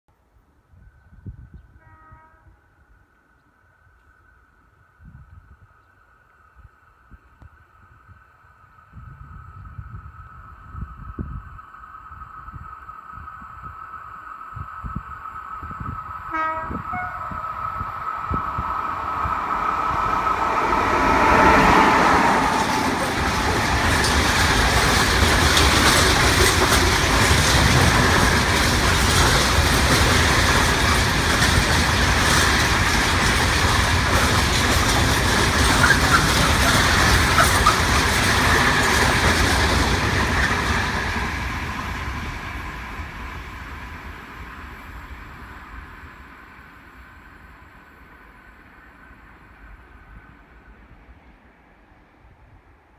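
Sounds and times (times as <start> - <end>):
electric locomotive passing: 0.8 - 52.9
train wagons rumbling by: 8.2 - 51.7
wheels clicking over rail joints: 22.5 - 42.4.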